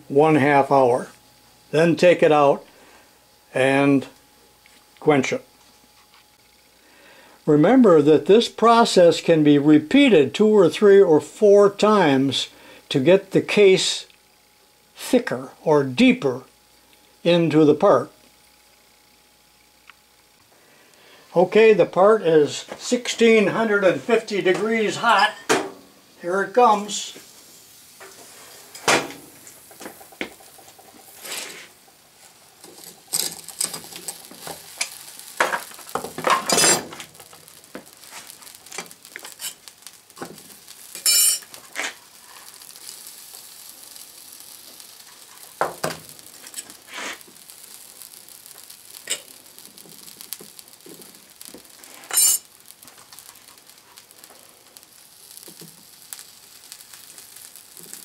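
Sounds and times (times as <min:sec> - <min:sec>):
powder sizzling on hot steel: 0:00.0 - 0:58.0
metal clinks and scrapes: 0:32.6 - 0:34.2, 0:36.3 - 0:37.0, 0:41.0 - 0:41.9, 0:52.0 - 0:52.5.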